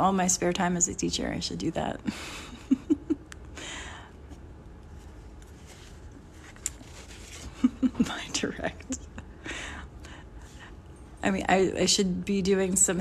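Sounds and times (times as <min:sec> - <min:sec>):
woman chuckling: 0:02.1 - 0:03.4, 0:07.4 - 0:09.8
paper rustling: 0:04.9 - 0:08.1.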